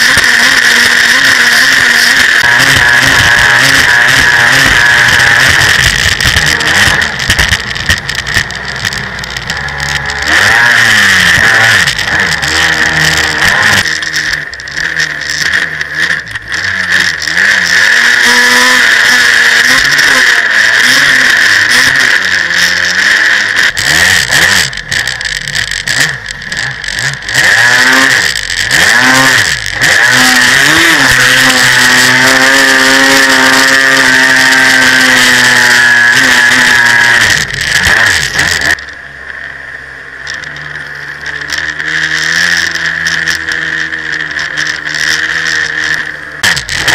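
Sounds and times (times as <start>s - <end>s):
jet ski engine revving: 0.0s - 46.9s.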